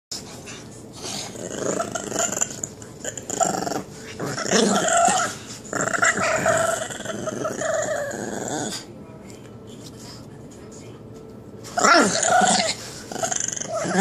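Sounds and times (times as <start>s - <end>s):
dog growling: 1.0s - 8.9s, 11.8s - 14.0s.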